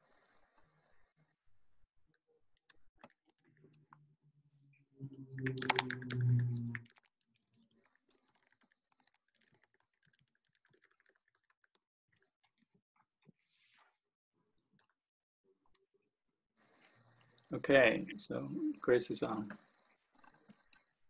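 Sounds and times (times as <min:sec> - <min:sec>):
steady low hum: 0:05.0 - 0:06.8.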